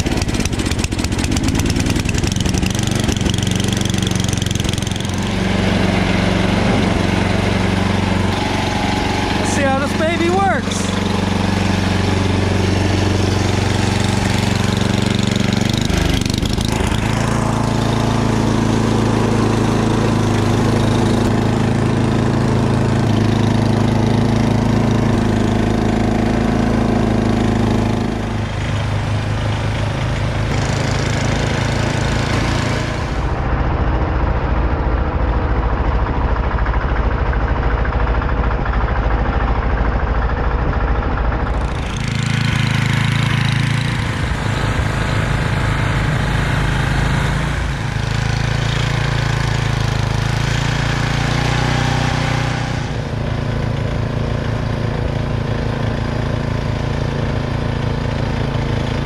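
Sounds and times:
auger churning snow: 0.0 - 33.8, 41.3 - 59.0
snowblower engine running: 0.0 - 59.0.

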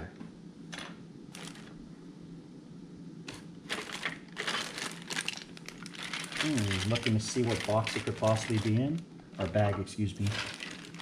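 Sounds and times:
plastic bags crinkling: 1.4 - 1.8, 3.3 - 9.6, 10.2 - 11.0.

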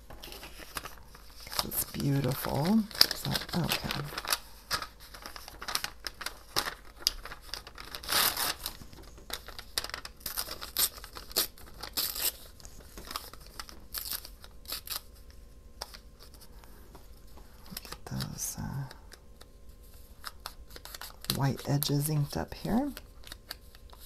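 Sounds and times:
paper tearing and crinkling: 0.0 - 16.5, 17.7 - 18.9, 19.8 - 24.0.

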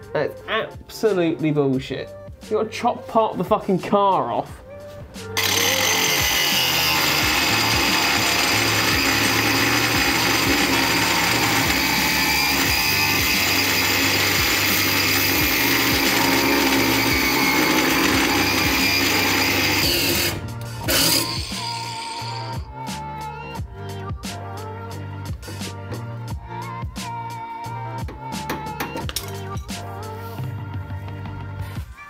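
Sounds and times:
background music: 0.0 - 32.0
angle grinder cutting metal: 5.4 - 22.7.

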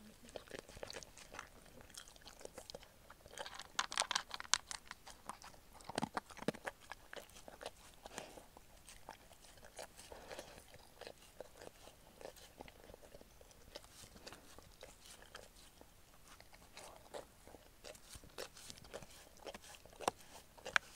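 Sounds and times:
dog crunching food: 0.2 - 20.9.

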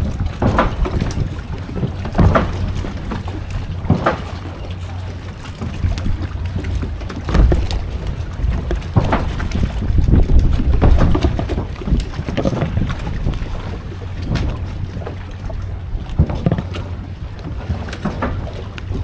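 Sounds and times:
hull and gear knocks: 0.0 - 15.2, 16.0 - 19.0
water sloshing: 0.0 - 19.0
wind buffeting microphone: 0.0 - 19.0.

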